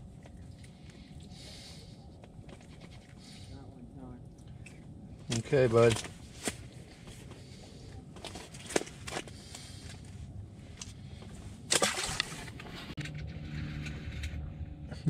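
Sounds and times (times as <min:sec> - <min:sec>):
fishing tackle clicks and rustles: 0:02.1 - 0:03.5, 0:04.4 - 0:14.4.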